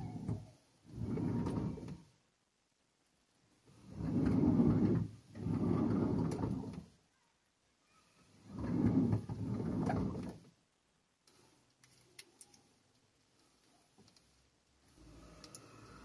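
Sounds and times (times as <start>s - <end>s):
sliding door rumbling on track: 0.0s - 2.0s, 3.8s - 6.9s, 8.4s - 10.4s.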